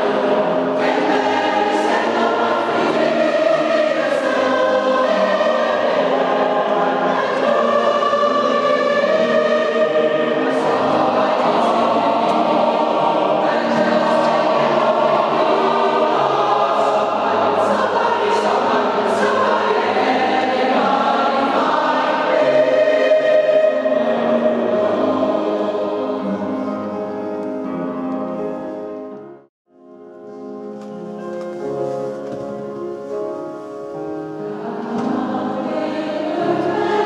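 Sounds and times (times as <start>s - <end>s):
mixed choir singing: 0.0s - 27.1s, 34.4s - 37.0s.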